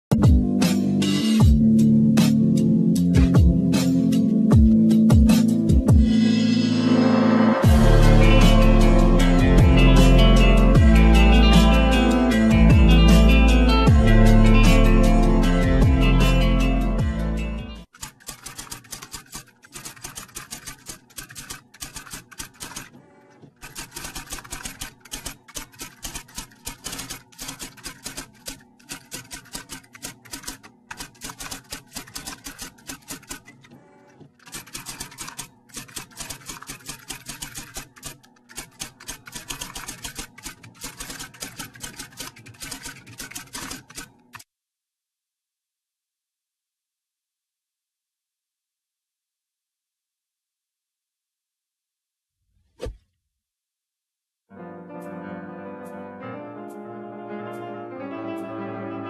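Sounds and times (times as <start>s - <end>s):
typewriter key clicks: 17.9s - 23.0s, 23.6s - 33.6s, 34.4s - 44.4s.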